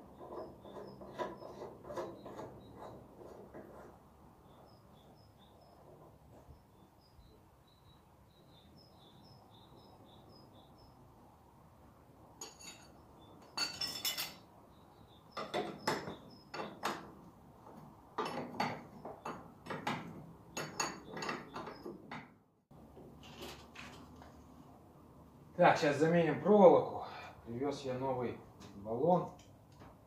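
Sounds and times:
spanners clinking against metal: 12.4 - 14.4, 20.5 - 21.9.

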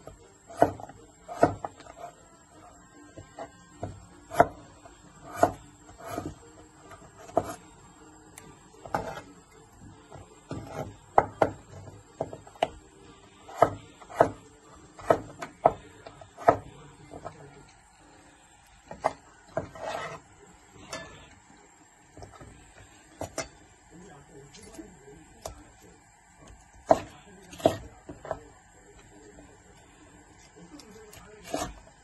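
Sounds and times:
cleaver knocking on cutting board: 10.5 - 12.7.

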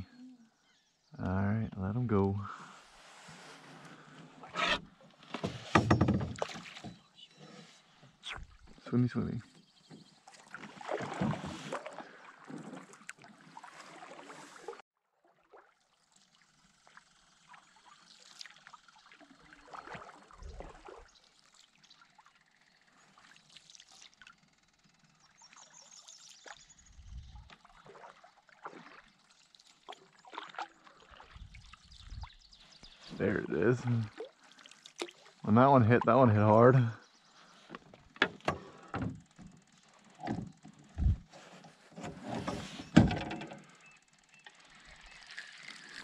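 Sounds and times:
water splashing and trickling: 1.2 - 46.0
faint water drips: 27.4 - 36.1.

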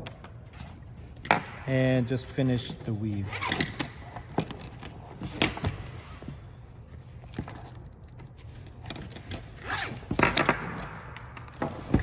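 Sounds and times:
strap sliding and rustling: 3.2 - 12.0.

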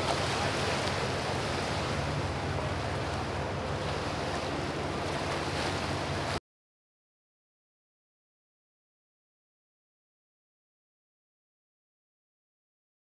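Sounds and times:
churning canal water: 0.0 - 6.4
motorboat engine running: 0.0 - 6.4.

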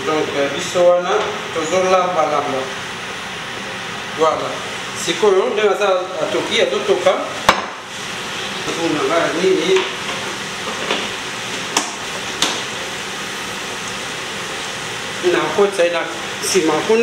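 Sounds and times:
food sizzling in a pan: 7.7 - 15.5.

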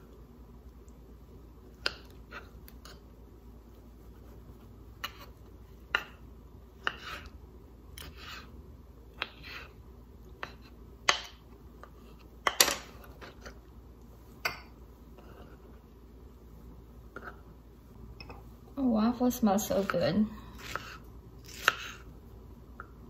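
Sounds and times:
knife slicing scrapes: 6.8 - 7.4, 8.0 - 8.6, 9.2 - 9.8, 20.5 - 22.1.

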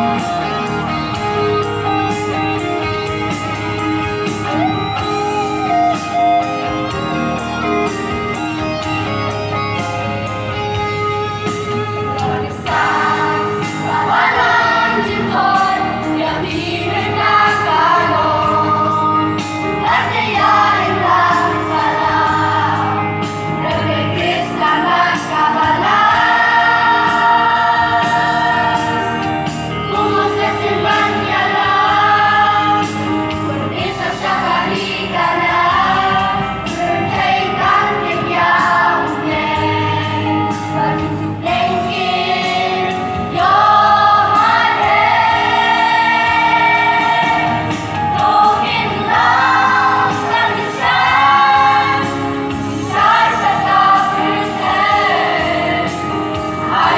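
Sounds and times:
choir singing a hymn: 11.8 - 56.9.

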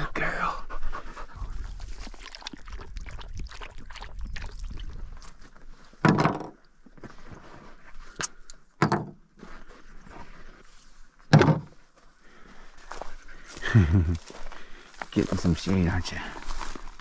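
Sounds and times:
sudden clunks: 11.3 - 11.8.

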